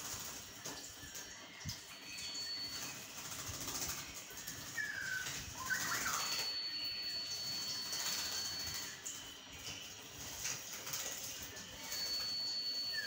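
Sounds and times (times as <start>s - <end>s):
bird fluttering and splashing: 0.0s - 13.0s
bird chirps: 4.3s - 10.0s.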